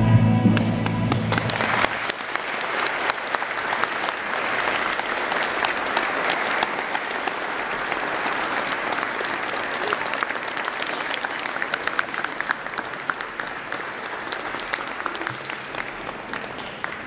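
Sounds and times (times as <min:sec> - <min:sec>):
closing music: 0:00.0 - 0:01.8
audience applause: 0:00.6 - 0:17.0.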